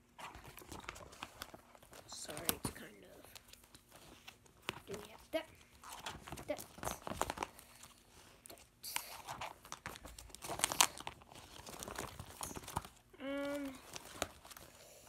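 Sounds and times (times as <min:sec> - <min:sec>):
plastic sleeves crinkling: 0:00.1 - 0:15.0
person humming: 0:13.1 - 0:13.9.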